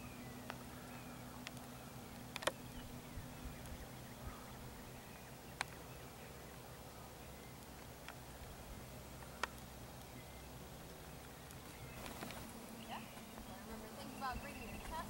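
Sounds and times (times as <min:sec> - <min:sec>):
faint outdoor ambience: 0:00.0 - 0:15.0
sharp clicks: 0:01.4 - 0:02.6.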